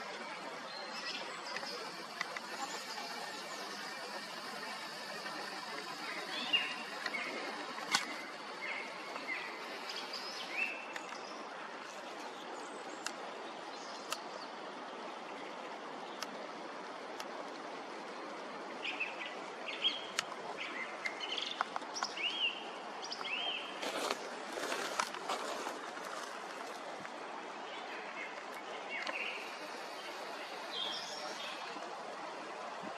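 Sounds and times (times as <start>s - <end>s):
song thrush singing: 0.0s - 11.4s, 27.7s - 31.7s
stream rushing: 0.0s - 12.6s, 23.7s - 32.9s.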